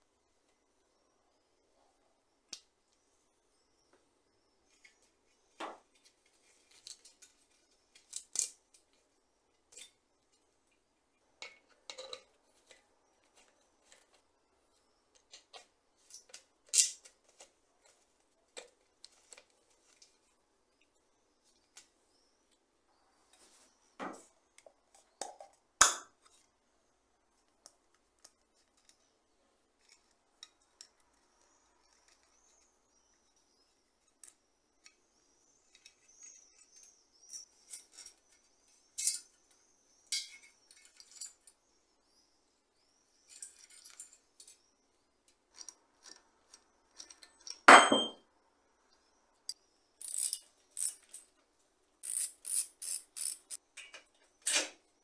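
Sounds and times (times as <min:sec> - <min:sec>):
ringing metal clang: 0:47.7 - 0:48.2
wrench clicking: 0:50.0 - 0:51.0, 0:52.0 - 0:53.6.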